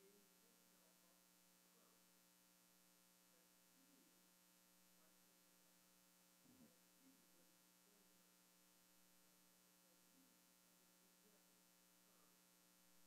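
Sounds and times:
faint electrical hum: 0.0s - 13.0s.

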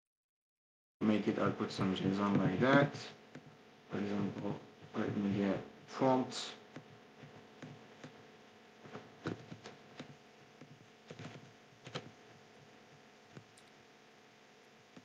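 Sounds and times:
computer keyboard typing: 9.2s - 12.2s.

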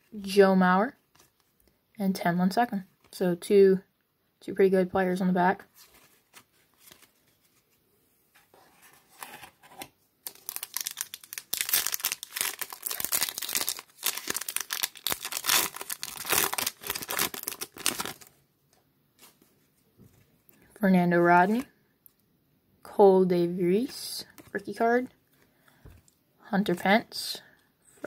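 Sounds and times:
foil wrapper tearing and crinkling: 10.3s - 18.3s.

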